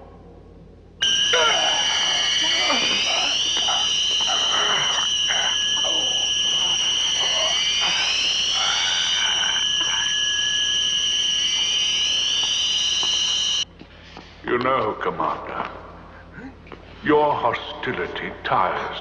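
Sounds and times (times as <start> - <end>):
high-pitched electronic tone: 1.0 - 13.6
rising electronic tones: 1.0 - 13.6
men groaning in pain: 1.3 - 10.3.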